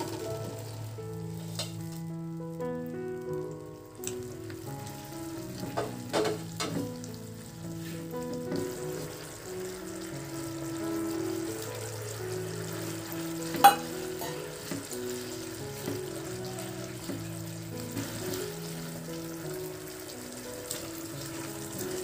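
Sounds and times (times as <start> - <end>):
sauce sizzling in a wok: 0.0 - 22.0
soft background music: 0.0 - 22.0
spatula knocking and scraping pan: 5.7 - 6.9.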